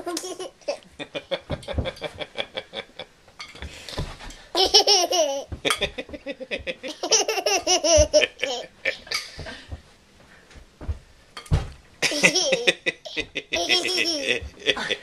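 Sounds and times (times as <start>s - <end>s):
baby giggling: 0.0s - 1.0s, 4.6s - 9.4s, 12.0s - 15.0s.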